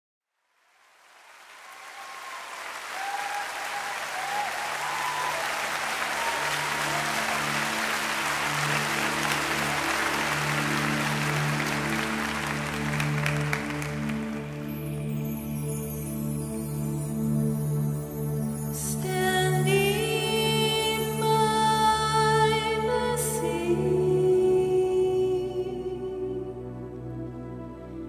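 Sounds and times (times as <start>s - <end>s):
audience applause and cheering: 0.8s - 15.7s
calls from crowd: 1.1s - 14.3s
low instrumental chord: 5.6s - 21.4s.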